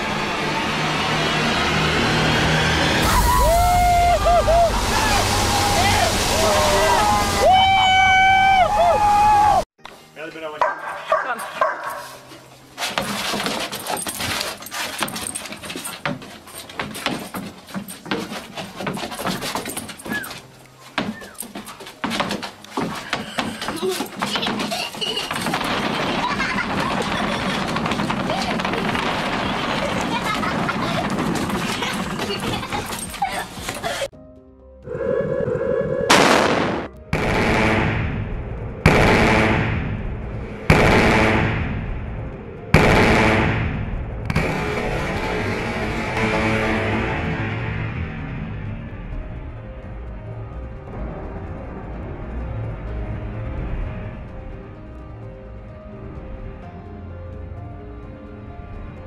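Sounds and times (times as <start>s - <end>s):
ball and paws on wooden boards: 10.6s - 34.1s
dog whining: 20.0s - 20.4s
loud bangs with rumble: 25.3s - 32.7s, 36.1s - 49.0s.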